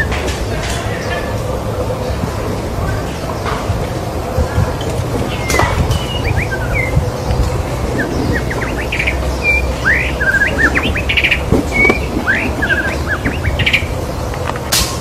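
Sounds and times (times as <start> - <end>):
steady low hum: 0.0 - 15.0
bird singing whistles and trills: 4.6 - 14.5.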